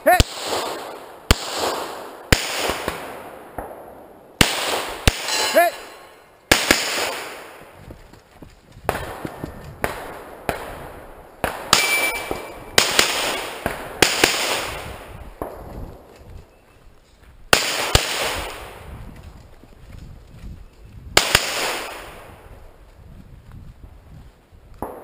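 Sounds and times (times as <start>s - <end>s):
gunshots with echo: 0.1s - 7.7s, 8.9s - 16.1s, 17.5s - 18.9s, 21.2s - 22.4s.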